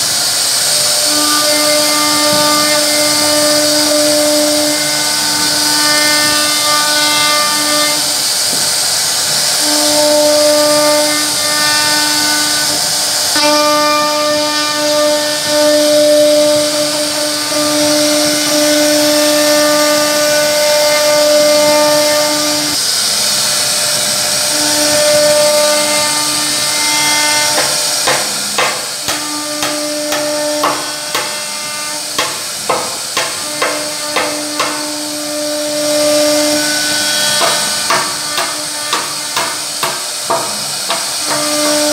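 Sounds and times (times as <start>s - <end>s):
motor hum: 0.0s - 41.9s
router bit hissing through wood: 0.0s - 41.9s
sharp knocks: 27.5s - 34.9s, 37.3s - 41.5s.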